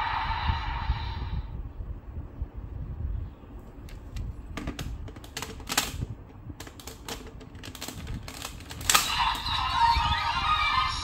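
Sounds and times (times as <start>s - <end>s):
plastic toy clicking: 5.0s - 9.1s.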